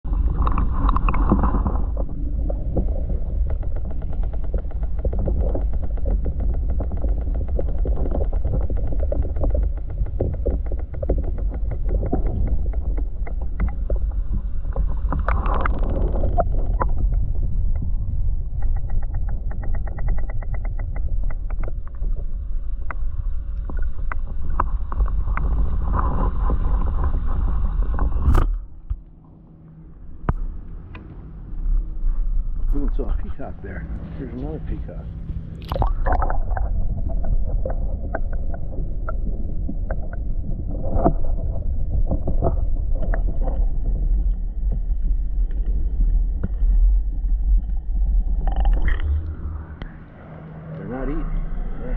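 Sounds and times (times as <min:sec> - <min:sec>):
underwater rumble of moving water: 0:00.0 - 0:51.9
faint rapid ticks: 0:02.7 - 0:25.5.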